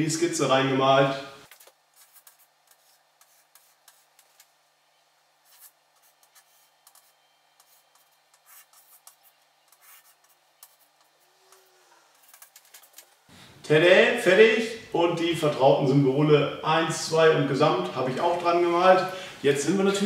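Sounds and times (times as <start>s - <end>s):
chalk scratching on chalkboard: 2.0s - 4.5s, 5.4s - 12.7s.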